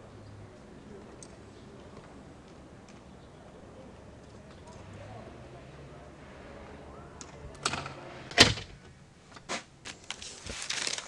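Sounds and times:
door shutting with a bang: 7.6s - 8.8s
paper pages rustling: 9.5s - 11.0s.

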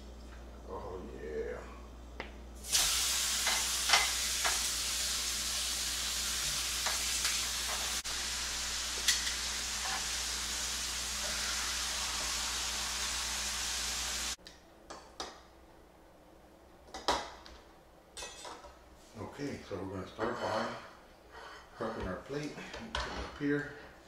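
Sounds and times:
beef sizzling on grill pan: 2.6s - 14.4s.

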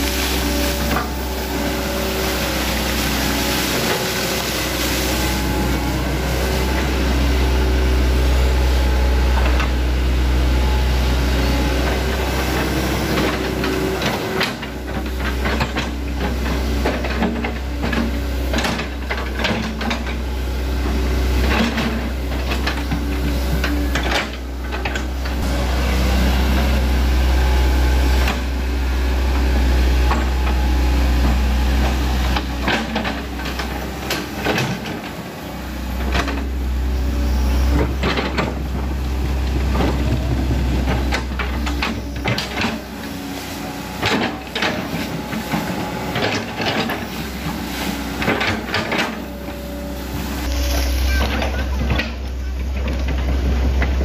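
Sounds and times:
excavator diesel engine running: 0.0s - 54.0s
machine knocks and clatter: 31.2s - 35.2s, 43.9s - 49.5s.

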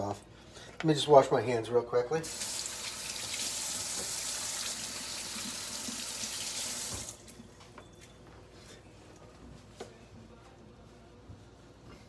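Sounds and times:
faucet running into metal sink: 2.2s - 7.2s.

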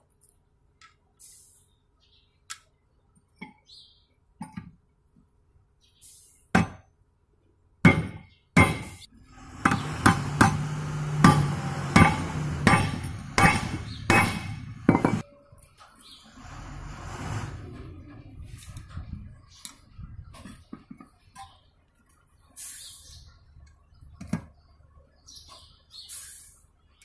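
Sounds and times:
hammer striking metal punch: 7.8s - 9.0s, 9.6s - 15.2s.

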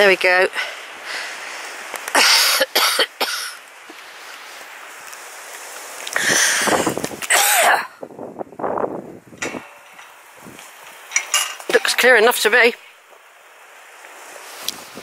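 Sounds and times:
person coughing: 2.2s - 3.6s, 7.3s - 8.0s.

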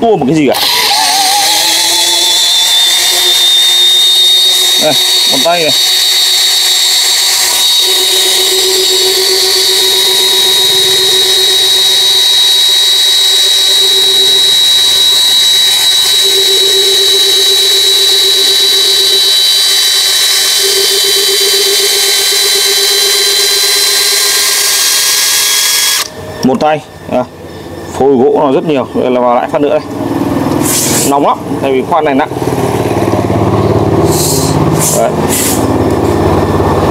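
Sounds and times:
drill boring into log: 0.4s - 26.6s.

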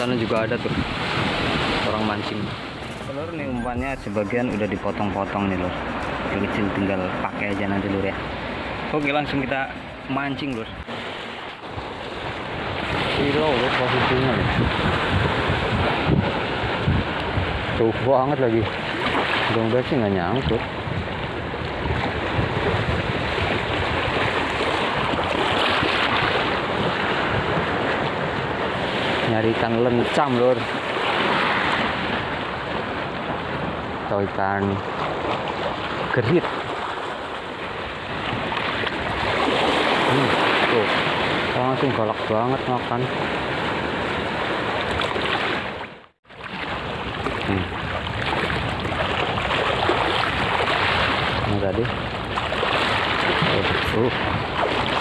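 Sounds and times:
sea water splashing against rocks: 0.0s - 4.9s, 21.8s - 29.3s, 34.8s - 42.3s, 43.1s - 55.0s
wind buffeting microphone: 0.0s - 55.0s.

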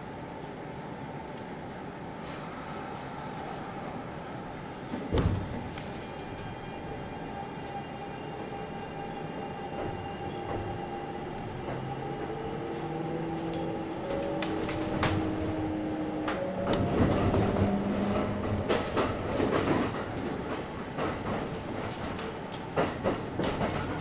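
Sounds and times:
rail clicks: 9.6s - 24.0s
wheel-on-rail rumble: 11.5s - 24.0s.

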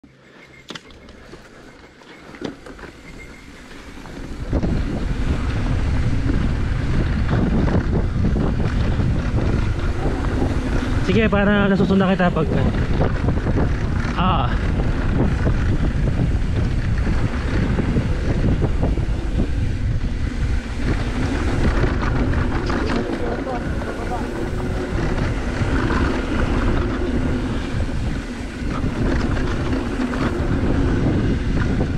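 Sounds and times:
bike tyres rumbling on dirt: 0.9s - 31.9s
wind buffeting microphone: 2.6s - 31.9s.

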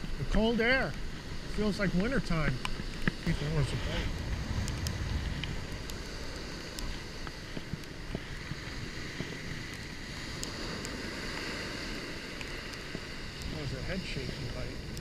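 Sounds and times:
ocean surf washing up: 0.0s - 15.0s
wind buffeting microphone: 0.0s - 15.0s
faint clicks: 4.1s - 6.1s.

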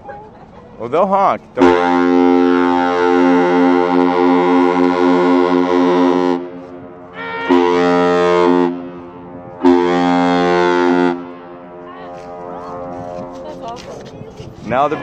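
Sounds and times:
deep ship horn blasts: 1.6s - 13.5s.

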